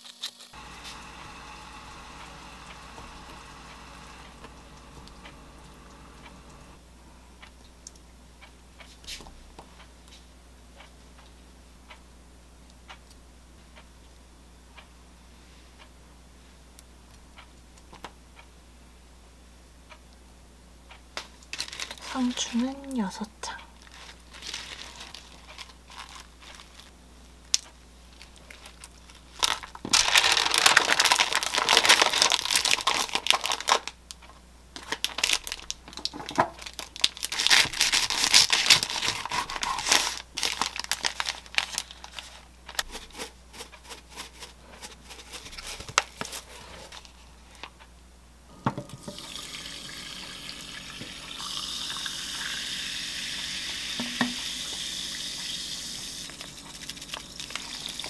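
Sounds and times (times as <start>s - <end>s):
baking paper crinkling: 21.5s - 22.7s, 23.8s - 26.9s, 28.1s - 34.0s, 34.8s - 47.8s, 56.3s - 58.0s
sparkling water fizzing pour: 49.0s - 58.0s.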